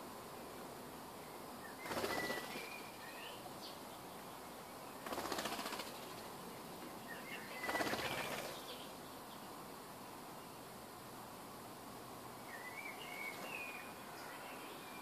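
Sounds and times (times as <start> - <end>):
bird wings flapping: 1.8 - 2.8, 5.0 - 6.3, 7.6 - 8.8.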